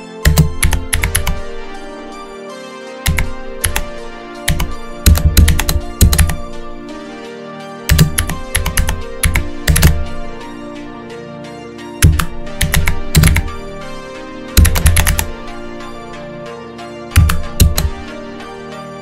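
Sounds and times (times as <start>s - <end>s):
background music: 0.0s - 19.0s
keyboard typing: 0.2s - 1.6s, 3.0s - 6.6s, 7.9s - 10.3s, 12.0s - 13.6s, 14.5s - 15.5s, 17.1s - 18.1s.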